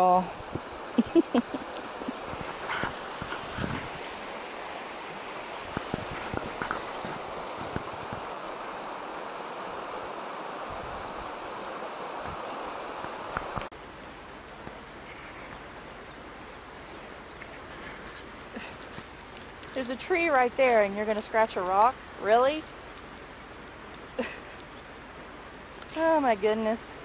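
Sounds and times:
river rushing over rocks: 0.0s - 15.0s.

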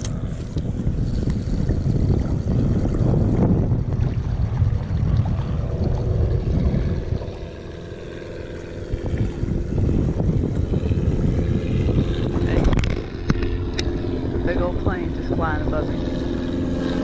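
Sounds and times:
faint engine hum: 0.0s - 17.0s
wind buffeting microphone: 0.0s - 17.0s.

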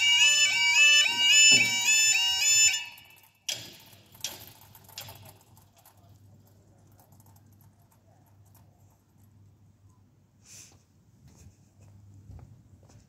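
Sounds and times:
two-tone warbling crossing alarm: 0.0s - 3.7s.

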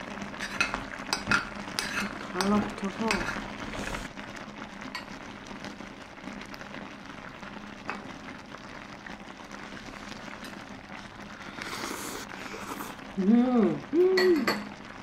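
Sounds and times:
stew sizzling in a pot: 0.0s - 15.0s
chopsticks clicking on a pot: 0.4s - 3.3s.

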